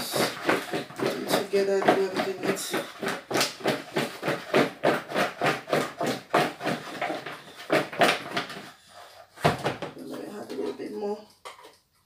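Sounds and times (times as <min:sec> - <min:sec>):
potatoes shaken in plastic bowl: 0:00.0 - 0:08.8.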